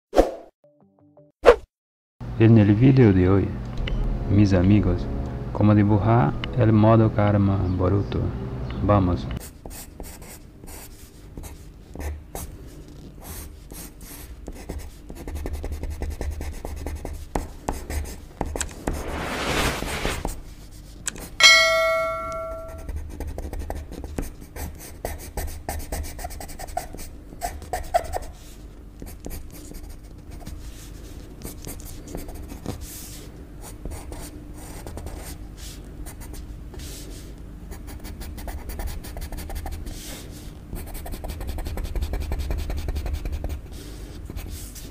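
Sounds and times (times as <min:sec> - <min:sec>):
pencil scratching on paper: 0:09.4 - 0:20.9, 0:22.8 - 0:28.4, 0:37.8 - 0:44.9
bell-like ring: 0:21.4 - 0:22.9.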